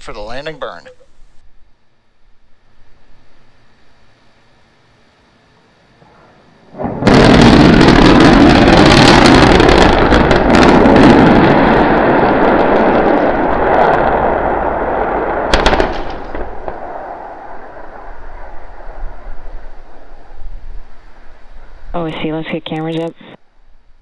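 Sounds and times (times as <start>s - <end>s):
sharp cracks: 6.7s - 20.6s
rocket explosion with rumble: 6.7s - 22.0s.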